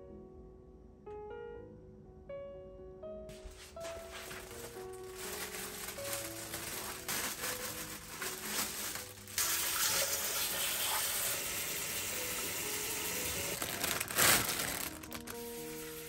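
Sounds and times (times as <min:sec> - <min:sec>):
plastic bags rustling: 0:03.3 - 0:16.0.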